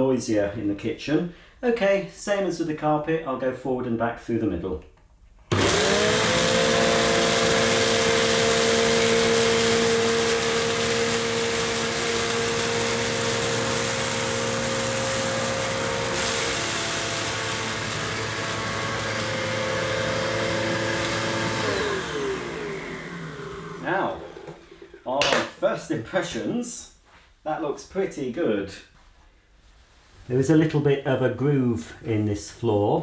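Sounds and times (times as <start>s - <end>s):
vacuum cleaner running: 5.5s - 25.5s.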